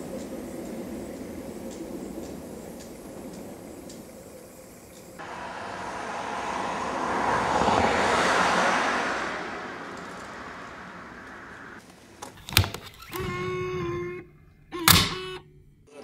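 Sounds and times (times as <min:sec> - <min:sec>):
car passing: 0:00.0 - 0:12.2.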